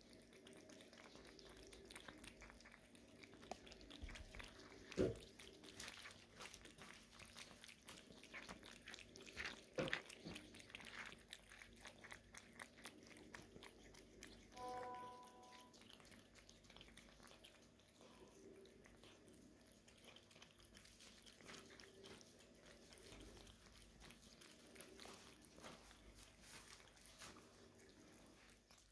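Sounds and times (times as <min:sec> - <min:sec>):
cats chewing and lapping food: 0:00.0 - 0:28.9
short steady tone: 0:14.6 - 0:15.6.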